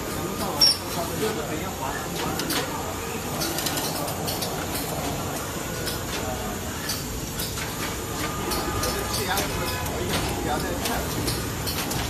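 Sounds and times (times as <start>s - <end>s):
machine hiss and hum: 0.0s - 12.0s
sharp mechanical clicks and clacks: 6.8s - 12.0s.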